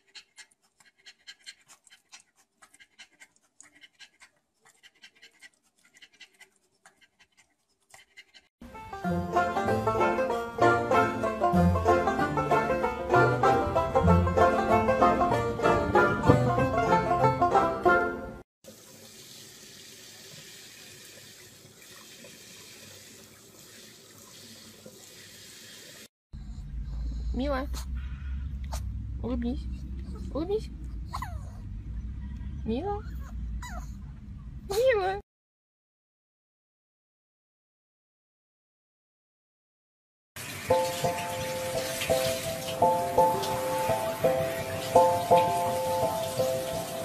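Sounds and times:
puppy panting: 0.0s - 8.5s
plucked string music: 8.7s - 18.2s.

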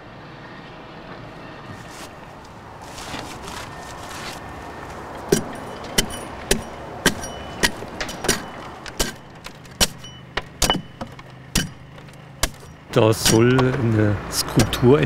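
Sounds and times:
mallet striking steel chisel: 5.3s - 9.2s, 9.8s - 13.6s.

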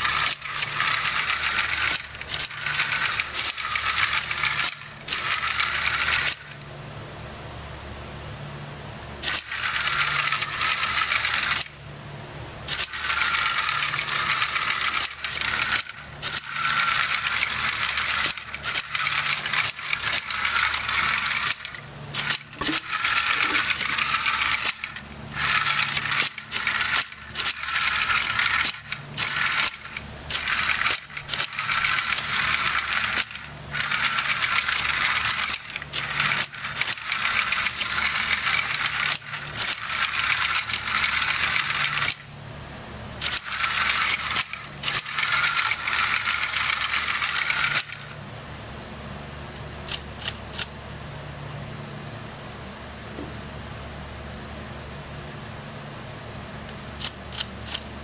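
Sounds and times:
plastic gears rattling on concrete: 0.0s - 6.6s, 9.2s - 11.8s, 12.7s - 42.3s, 43.2s - 48.2s
small gear motor whirring: 0.0s - 6.6s, 9.2s - 11.8s, 12.7s - 42.3s, 43.2s - 48.2s.

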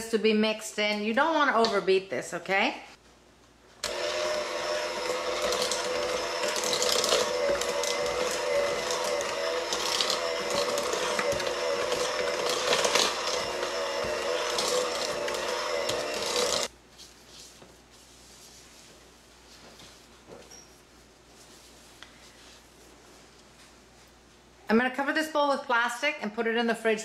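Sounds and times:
electric hand mixer running: 3.8s - 16.7s.

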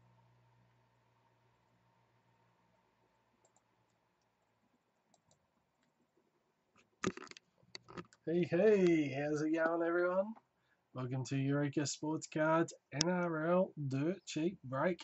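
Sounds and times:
computer mouse clicking: 3.4s - 4.5s, 5.1s - 5.9s.

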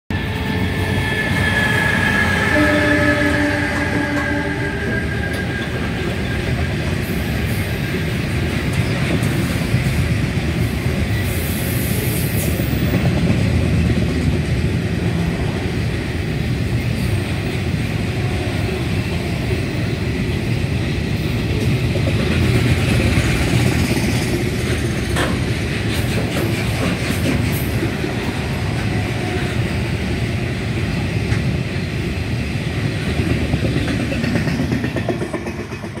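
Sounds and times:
train wheels rumbling on rails: 0.1s - 36.0s.

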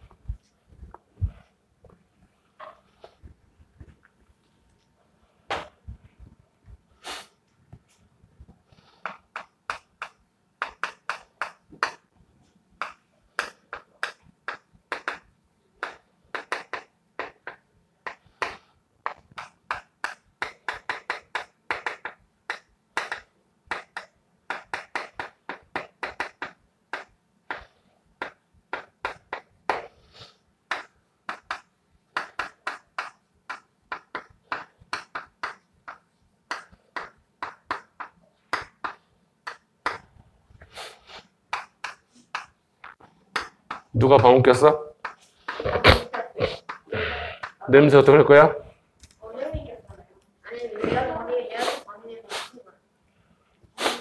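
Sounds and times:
sharp taps and clicks: 9.0s - 12.1s, 12.8s - 29.9s, 30.7s - 40.1s, 41.5s - 44.0s.

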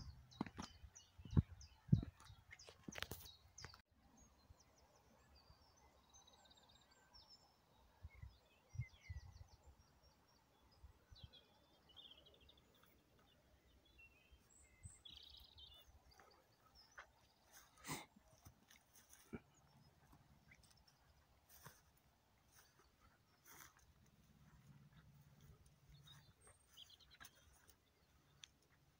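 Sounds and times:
soft low thumps: 0.0s - 2.4s
small birds trilling and chirping: 0.0s - 28.9s.

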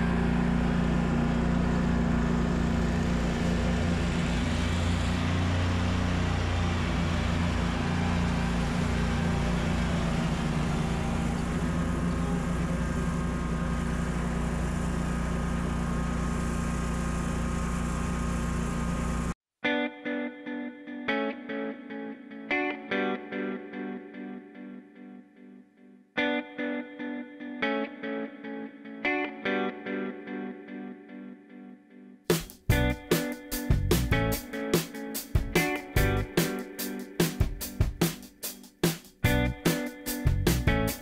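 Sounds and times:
lawn mower engine running: 0.0s - 19.4s, 32.3s - 34.4s, 35.4s - 36.5s, 39.2s - 41.0s.

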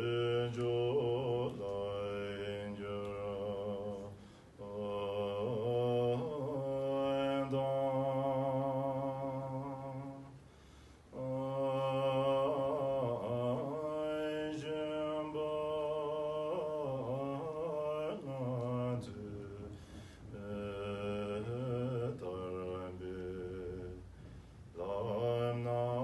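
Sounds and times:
man chanting a prayer: 0.0s - 10.3s, 11.2s - 24.1s, 24.7s - 26.0s.

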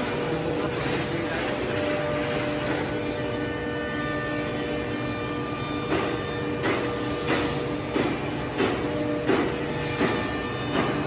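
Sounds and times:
router cutting wood: 0.0s - 8.4s.

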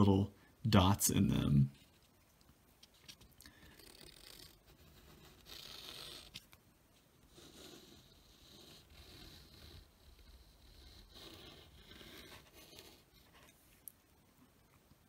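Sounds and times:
pen scratching on paper: 3.0s - 6.4s, 7.2s - 13.7s.

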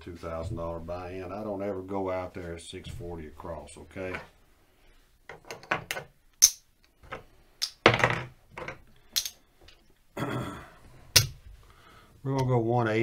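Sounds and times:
casino chips clicking: 6.4s - 6.6s, 9.1s - 9.4s.

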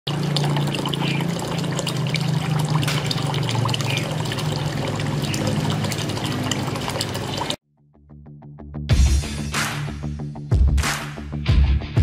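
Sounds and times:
water trickling into basin: 0.1s - 7.6s.

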